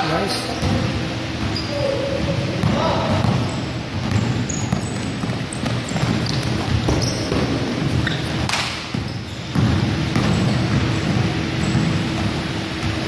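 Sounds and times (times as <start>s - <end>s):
basketball bouncing: 0.6s - 13.0s
footsteps on hardwood court: 2.6s - 13.0s.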